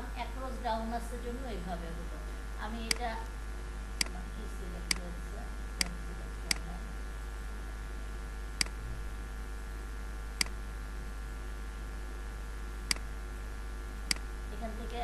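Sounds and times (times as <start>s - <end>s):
steady low hum: 0.0s - 15.0s
computer mouse clicks: 14.1s - 14.3s.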